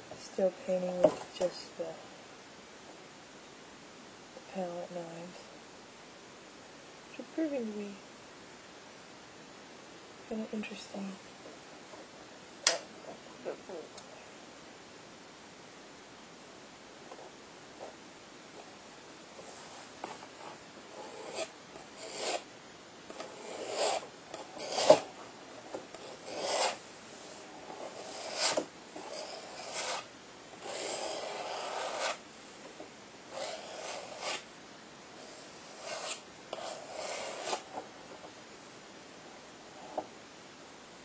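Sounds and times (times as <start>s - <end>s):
palette knife scraping paint: 20.3s - 22.5s, 23.1s - 25.1s, 25.9s - 26.8s, 27.4s - 32.2s, 33.3s - 34.5s, 35.2s - 37.8s.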